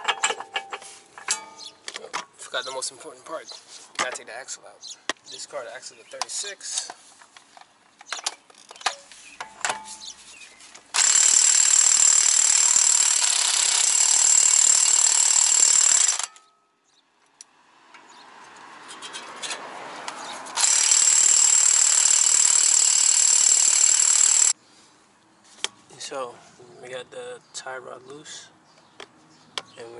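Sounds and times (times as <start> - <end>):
impact wrench hammering: 0.0 - 1.8, 11.0 - 16.5, 20.6 - 24.5.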